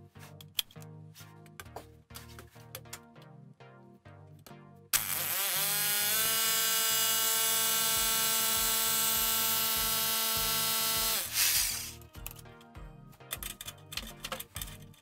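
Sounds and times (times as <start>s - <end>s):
background music with low beat: 0.0s - 5.4s, 6.8s - 15.0s
electric drill motor whining: 5.0s - 12.0s.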